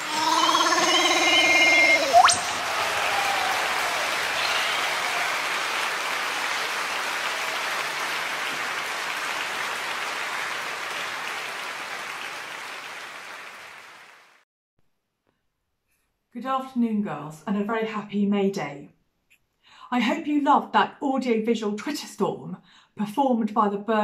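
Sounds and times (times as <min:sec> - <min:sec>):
rising whistle: 0:00.0 - 0:05.1
applause: 0:02.3 - 0:14.4.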